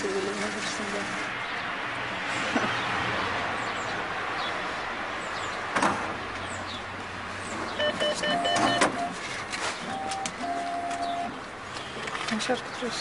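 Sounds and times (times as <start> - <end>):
street noise: 0.0 - 13.0
keypad beeps: 7.8 - 9.2, 9.9 - 11.3.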